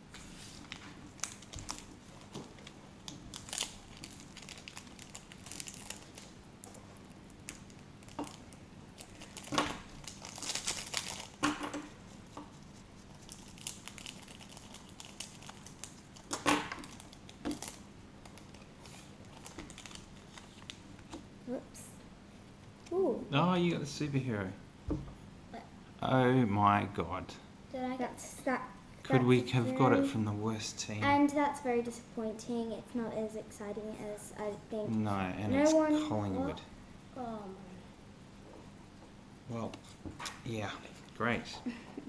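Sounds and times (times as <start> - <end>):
foil wrapper crinkling and tearing: 1.1 - 6.8, 7.4 - 11.5, 13.1 - 20.8.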